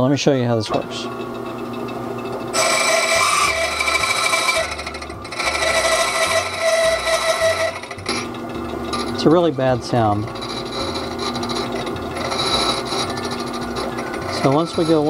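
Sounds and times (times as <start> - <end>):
cutter wheel screeching on metal: 0.7 - 15.0
key cutting machine motor hum: 0.8 - 9.4.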